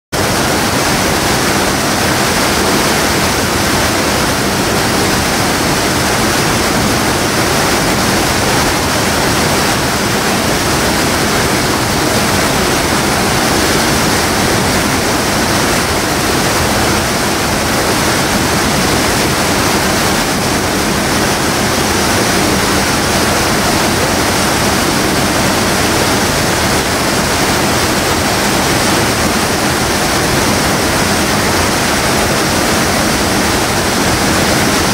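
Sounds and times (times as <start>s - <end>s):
water crashing into whitewater: 0.2s - 34.9s.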